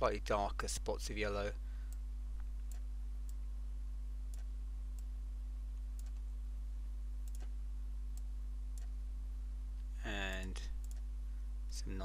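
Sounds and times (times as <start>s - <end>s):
low electrical hum: 0.0s - 12.0s
computer mouse clicking: 6.0s - 6.2s, 7.2s - 7.5s, 10.3s - 11.1s.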